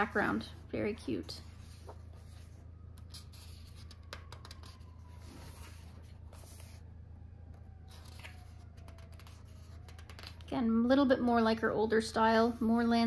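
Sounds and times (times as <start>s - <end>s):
paper rustling: 1.4s - 6.8s, 7.8s - 10.5s.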